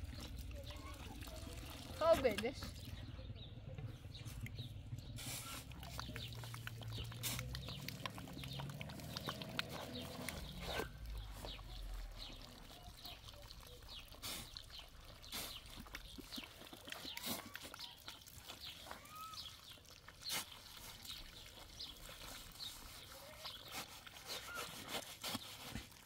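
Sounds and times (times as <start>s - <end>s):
faint livestock sounds: 5.2s - 26.0s.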